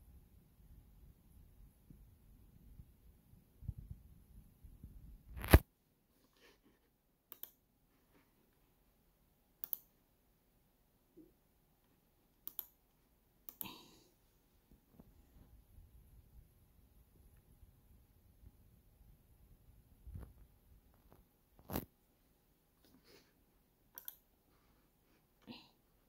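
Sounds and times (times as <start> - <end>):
computer mouse clicks: 7.3 - 7.6, 9.6 - 9.9, 12.4 - 13.8, 23.9 - 24.3.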